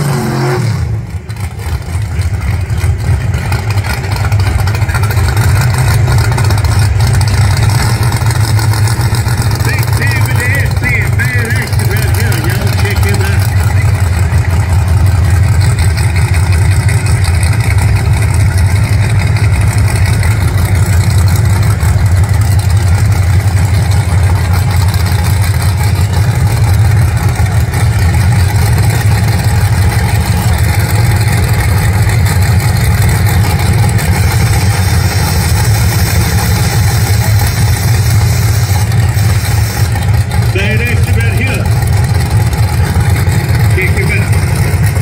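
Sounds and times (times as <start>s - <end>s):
engine idling: 0.4s - 45.0s.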